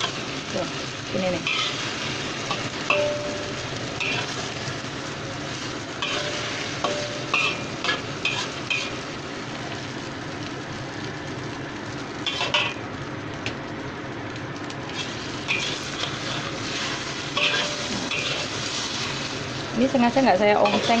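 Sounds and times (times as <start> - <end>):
food sizzling in oil: 0.0 - 21.0
spatula scraping pan: 1.4 - 1.9, 4.0 - 4.4, 6.0 - 9.0, 14.9 - 19.3, 20.6 - 21.0.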